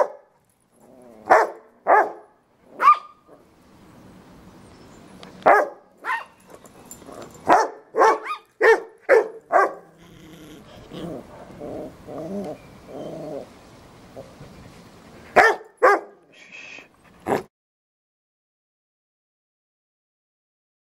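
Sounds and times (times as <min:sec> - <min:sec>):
dog growling: 0:00.8 - 0:01.4, 0:09.8 - 0:13.5
small dog yapping: 0:02.8 - 0:03.2, 0:05.5 - 0:06.4.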